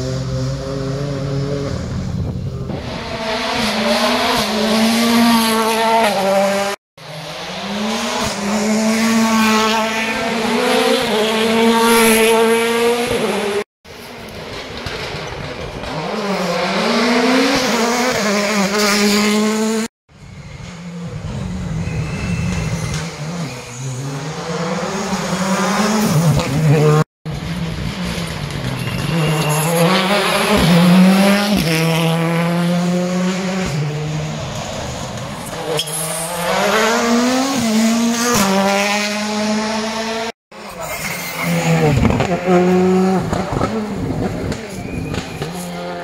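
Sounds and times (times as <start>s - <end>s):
rally car engines revving past: 14.4s - 19.9s, 20.5s - 46.0s.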